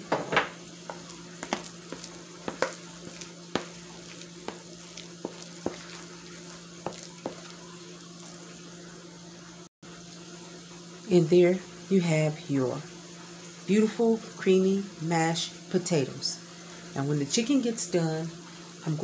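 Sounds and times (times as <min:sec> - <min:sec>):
chicken sizzling in oil: 0:00.0 - 0:15.5
spoon scraping bowl: 0:00.9 - 0:07.6.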